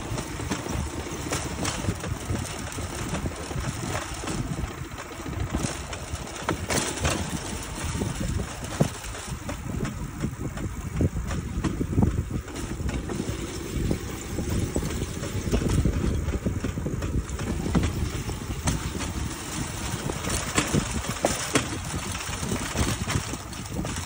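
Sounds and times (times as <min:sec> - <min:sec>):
clacks and rattles: 0:00.0 - 0:24.0
wheels rumbling on rails: 0:00.0 - 0:24.0.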